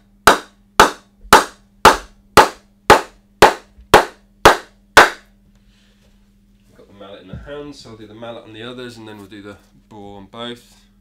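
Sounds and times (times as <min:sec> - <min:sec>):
mallet knocking on cricket bat: 0:00.3 - 0:05.2.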